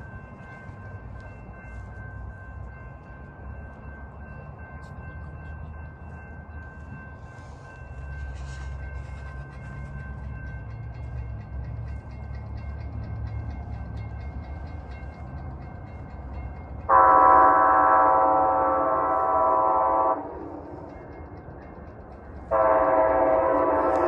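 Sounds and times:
crossing bell ringing: 0.0 - 24.0
locomotive rumble: 0.0 - 24.0
locomotive horn chord: 16.9 - 20.4, 22.5 - 24.0.

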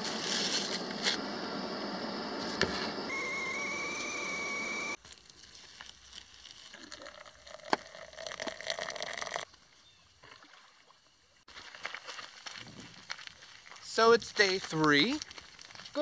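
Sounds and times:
water pouring from a kettle: 6.5 - 9.4.

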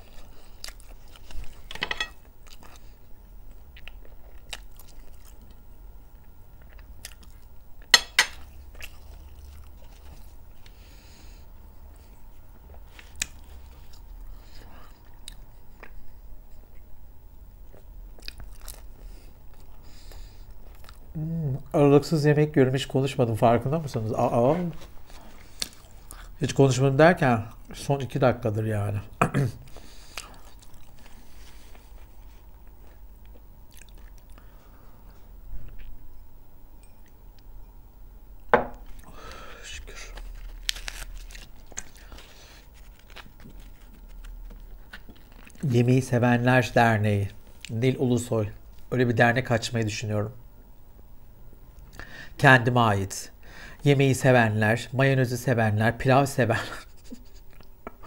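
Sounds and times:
person chewing crunchy food: 0.0 - 10.8, 17.6 - 21.7, 25.0 - 26.4, 29.6 - 36.1, 38.8 - 45.7
bread crust crackling as torn: 39.7 - 45.7.

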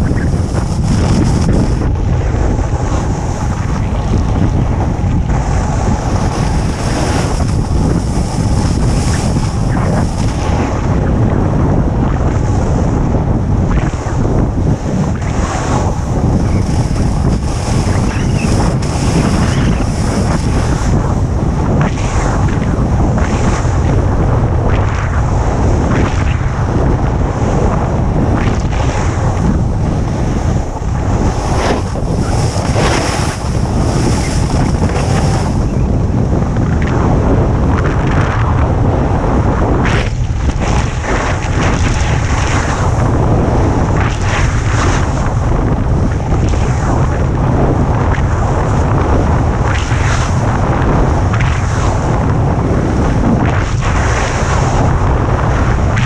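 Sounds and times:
wind buffeting microphone: 0.0 - 56.0
snowboard edge scraping snow: 15.4 - 21.0, 31.2 - 35.7.

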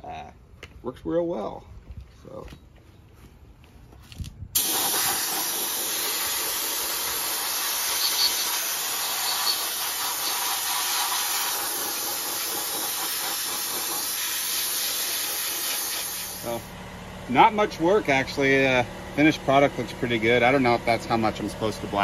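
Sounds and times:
abrasive blasting hiss: 4.6 - 16.6.

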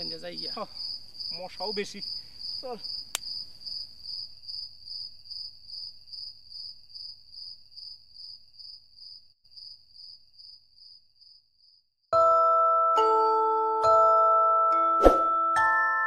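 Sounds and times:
crickets chirping: 0.0 - 11.9.

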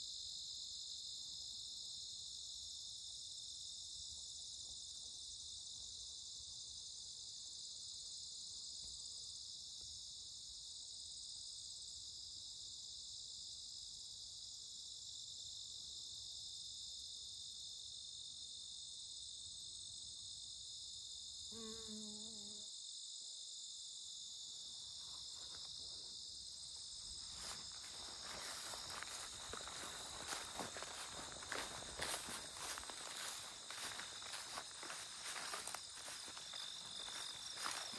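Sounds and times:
crickets chirping: 0.0 - 37.9
bee buzzing past: 21.5 - 22.7
footsteps through grass: 26.8 - 37.9.

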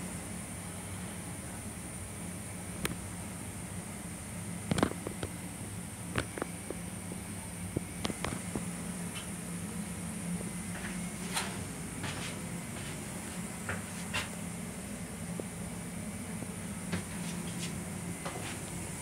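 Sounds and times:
railcar hum and hiss: 0.0 - 19.0.

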